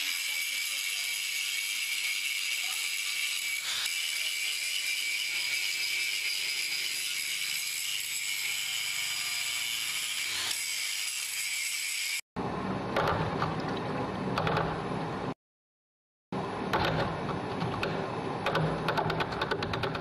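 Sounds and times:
power grinder whining on metal: 0:00.0 - 0:12.2.

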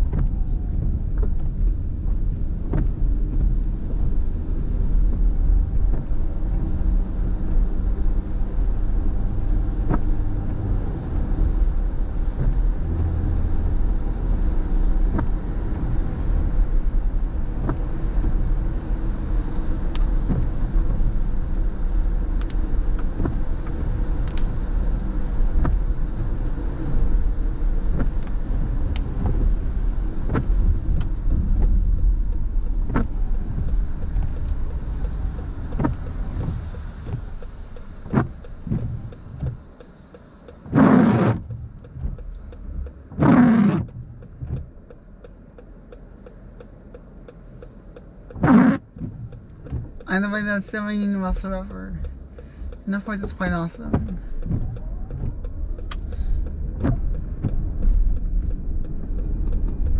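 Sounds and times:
tyre and road noise on wet pavement: 0:00.0 - 0:59.9
windshield wipers sweeping: 0:00.0 - 0:59.9
faint regular ticking: 0:30.3 - 0:59.9.

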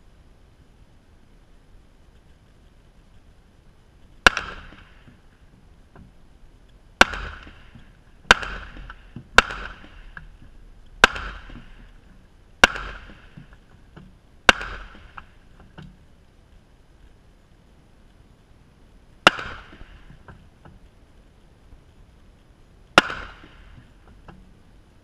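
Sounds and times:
handgun shots with echo: 0:04.2 - 0:04.9, 0:07.0 - 0:10.1, 0:11.0 - 0:11.8, 0:12.6 - 0:13.3, 0:14.5 - 0:15.3, 0:19.3 - 0:20.0, 0:23.0 - 0:23.7.

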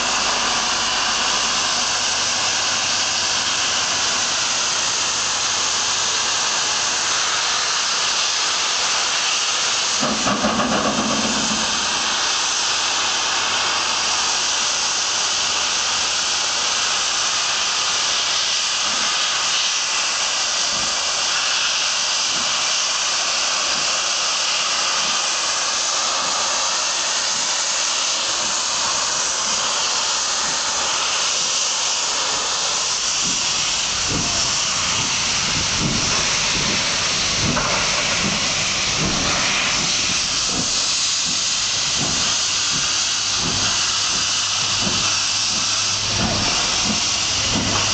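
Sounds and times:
steam locomotive hissing steam: 0:00.0 - 0:47.9
faint low exhaust beats: 0:33.0 - 0:47.9.

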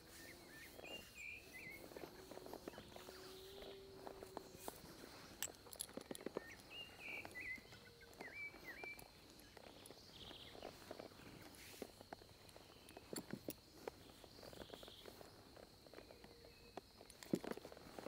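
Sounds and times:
high insect tone: 0:00.0 - 0:18.0
horse shuffling and clicking: 0:00.0 - 0:18.0
bird whistling: 0:06.4 - 0:09.1.

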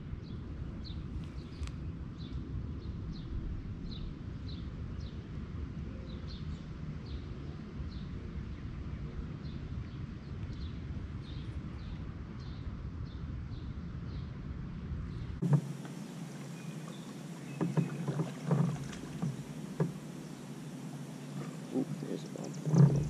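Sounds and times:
low rumble: 0:00.0 - 0:23.0
small bird chirping: 0:15.4 - 0:23.0.

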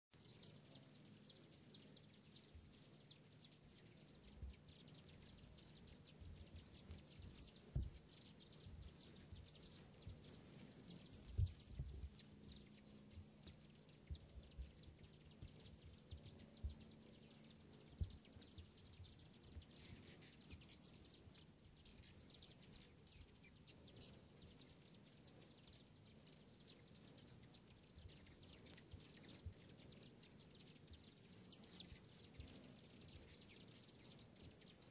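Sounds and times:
insects trilling: 0:00.2 - 0:34.9
soft low thumps: 0:07.7 - 0:08.1, 0:11.3 - 0:12.2, 0:13.1 - 0:16.9.

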